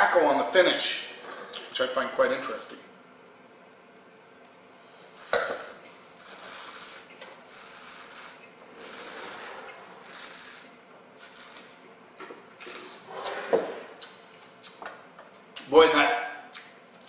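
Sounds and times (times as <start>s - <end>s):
lips and tongue smacking: 14.0s - 14.8s, 16.5s - 16.8s.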